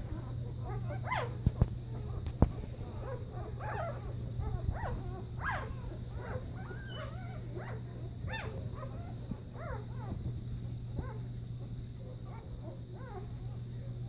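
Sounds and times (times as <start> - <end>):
steady low hum: 0.0 - 14.0
puppies squeaking and whimpering: 0.1 - 10.2.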